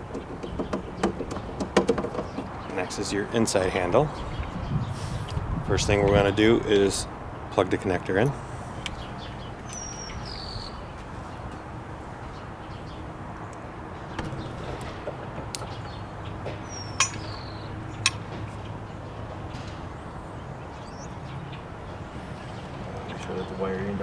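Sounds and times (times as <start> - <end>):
bird chirping: 0.0 - 4.9, 8.8 - 24.0.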